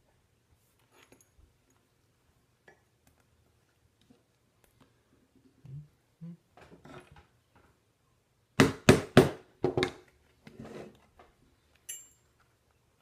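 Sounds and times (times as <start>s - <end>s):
metallic clink: 11.8s - 12.4s.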